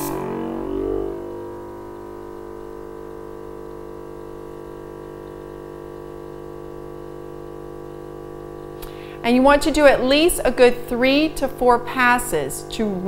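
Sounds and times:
airbrush compressor humming: 0.0 - 9.3.

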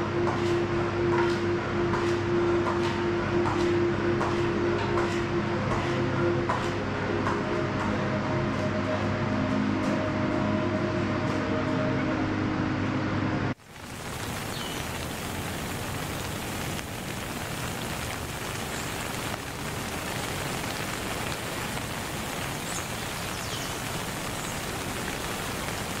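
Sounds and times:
background music: 0.2 - 13.6
rain-like hiss: 13.6 - 26.0.

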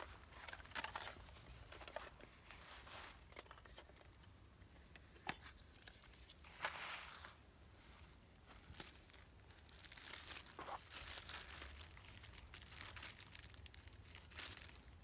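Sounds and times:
dry pine needles rustling: 6.6 - 15.0.

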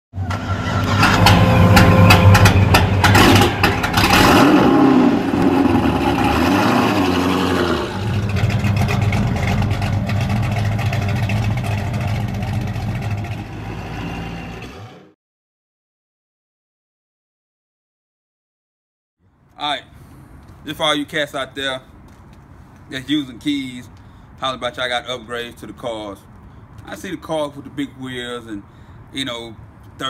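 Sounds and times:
car engine starting and revving: 0.3 - 15.1
car engine idling: 0.9 - 13.6.

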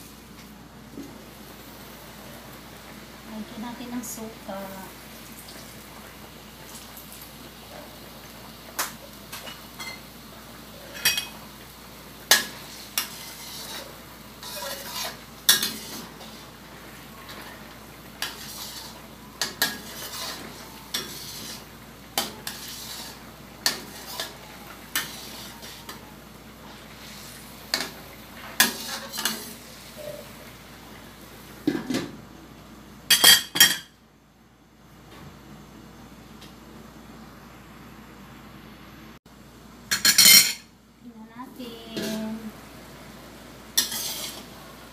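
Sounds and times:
metal spatula scraping a wok: 12.3 - 16.6, 17.2 - 26.0, 26.6 - 30.3, 41.8 - 42.4, 43.8 - 44.6.

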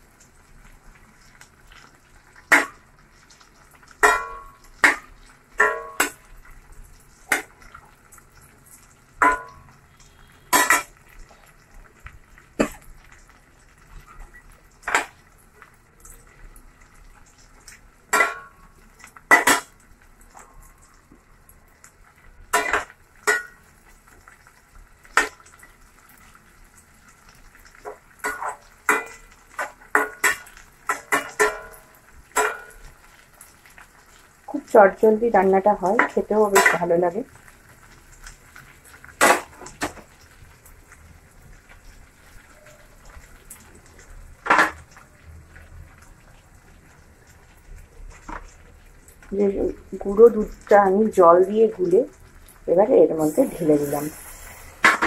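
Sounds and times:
faint sizzle of frying: 0.0 - 55.0.

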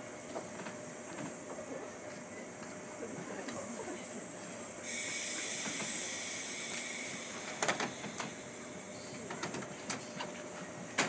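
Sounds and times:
train air brakes hissing: 4.4 - 9.9.

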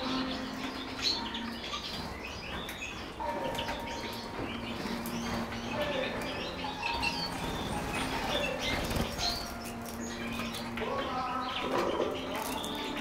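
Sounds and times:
birds fluttering wings: 7.0 - 13.0.

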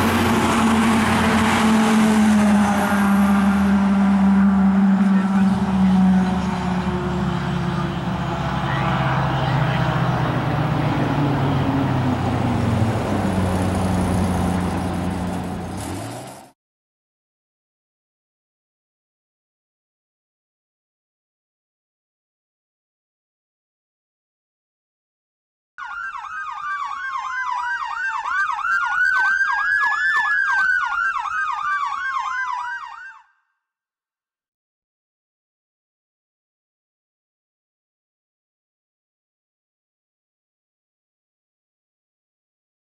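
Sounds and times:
diesel engine accelerating: 0.0 - 16.6
tyre and road noise: 0.0 - 16.6.

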